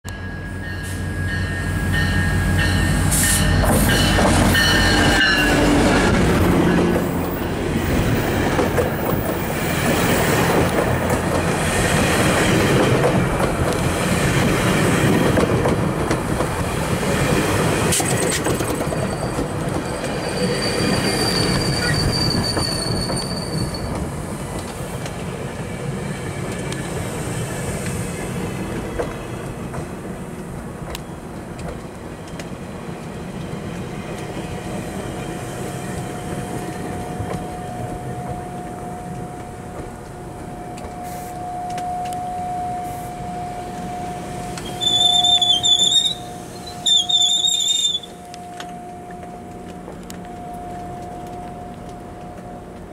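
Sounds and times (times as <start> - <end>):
diesel locomotive passing: 0.1 - 52.9
train wheels rumbling: 0.1 - 52.9
high wheel squeal: 18.8 - 24.0, 42.7 - 48.3.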